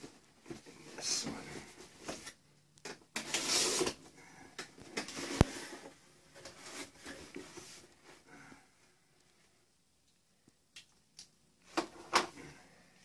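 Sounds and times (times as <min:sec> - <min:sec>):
cardboard rustling and scraping: 0:03.1 - 0:04.1, 0:04.9 - 0:08.2.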